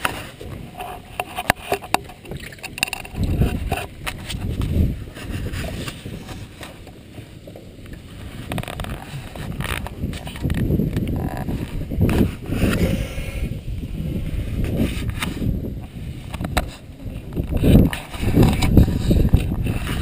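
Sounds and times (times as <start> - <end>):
wind and water rumble: 0.0 - 20.0
sharp knocks and clicks: 1.1 - 4.7.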